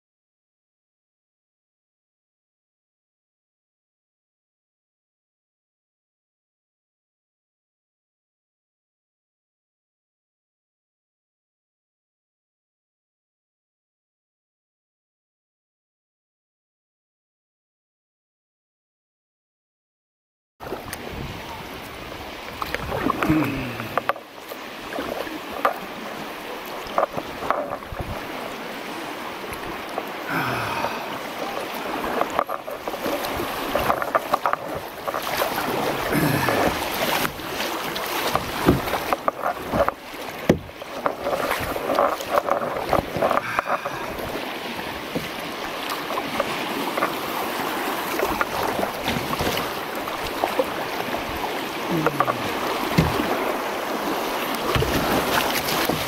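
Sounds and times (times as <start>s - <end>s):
creek water rushing: 20.6s - 56.0s
paddle knocks and splashes: 20.6s - 56.0s.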